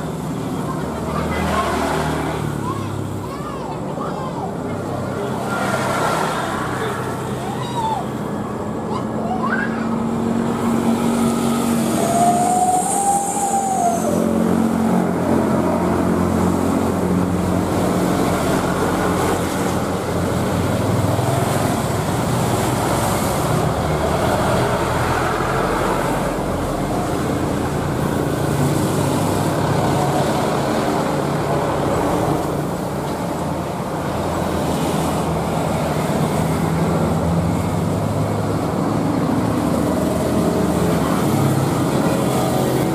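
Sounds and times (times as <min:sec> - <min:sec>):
jet engines roaring: 0:04.5 - 0:42.9
whistle-like tone: 0:12.0 - 0:14.3.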